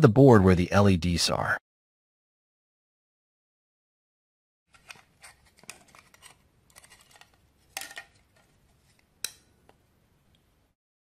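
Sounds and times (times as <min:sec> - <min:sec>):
screwdriver scraping and clicking: 0:04.7 - 0:08.5.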